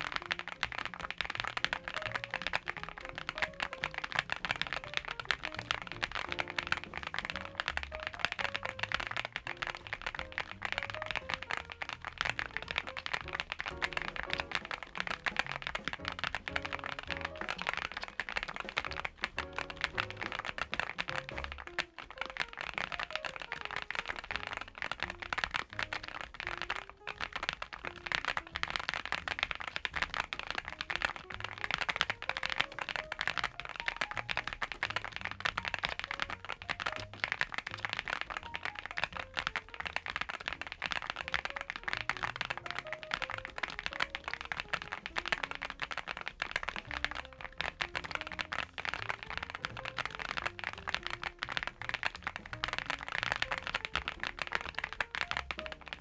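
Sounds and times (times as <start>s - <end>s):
fast typing on mechanical keyboard: 0.0s - 56.0s.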